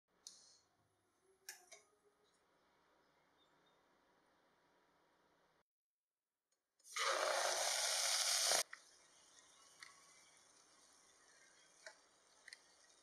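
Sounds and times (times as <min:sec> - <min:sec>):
meat sizzling in hot oil: 0:07.0 - 0:08.7.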